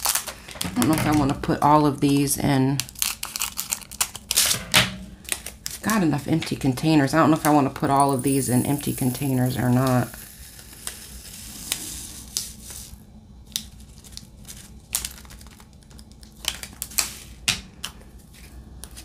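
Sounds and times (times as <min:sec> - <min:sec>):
plastic crinkling: 0:00.0 - 0:04.5, 0:13.6 - 0:17.4.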